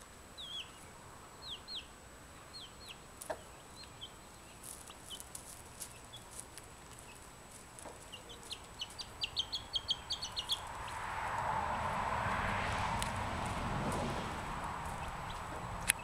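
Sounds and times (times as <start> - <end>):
chick peeping: 0.4 - 11.0, 14.8 - 16.0
rushing noise: 10.0 - 15.9.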